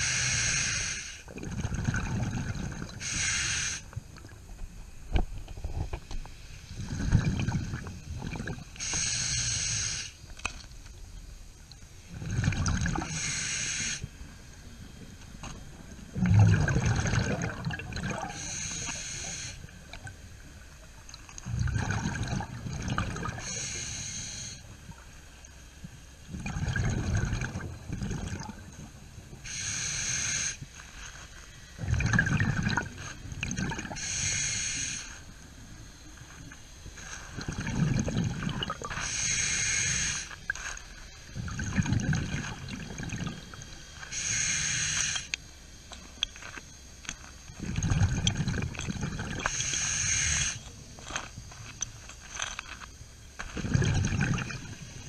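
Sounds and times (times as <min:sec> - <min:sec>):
regulator inhale hiss: 0:00.0 - 0:01.3, 0:03.0 - 0:04.0, 0:08.8 - 0:10.3, 0:13.0 - 0:15.0, 0:18.3 - 0:19.8, 0:23.4 - 0:24.8, 0:29.4 - 0:31.8, 0:33.9 - 0:35.4, 0:38.8 - 0:41.1, 0:43.3 - 0:45.5, 0:49.4 - 0:51.3
exhaust bubbles rumbling: 0:01.3 - 0:03.0, 0:06.8 - 0:08.7, 0:12.1 - 0:13.1, 0:15.9 - 0:18.4, 0:21.4 - 0:23.4, 0:26.3 - 0:29.0, 0:31.8 - 0:34.0, 0:37.4 - 0:38.9, 0:41.4 - 0:43.7, 0:47.6 - 0:49.5, 0:53.4 - 0:55.0.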